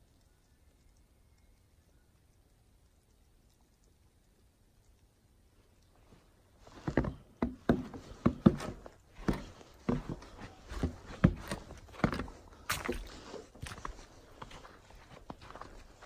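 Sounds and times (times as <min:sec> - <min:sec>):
footsteps on snow: 0:06.6 - 0:16.0.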